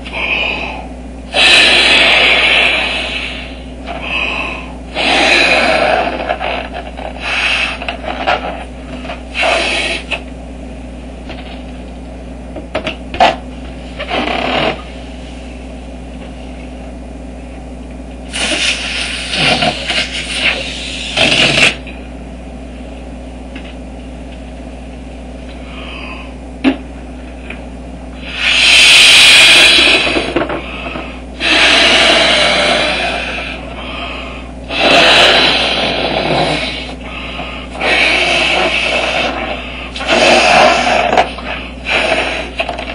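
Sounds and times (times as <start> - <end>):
steady low hum: 0.0 - 42.9
breath puffing into balloon: 0.7 - 8.6, 9.2 - 10.2, 18.3 - 21.8, 28.2 - 42.9.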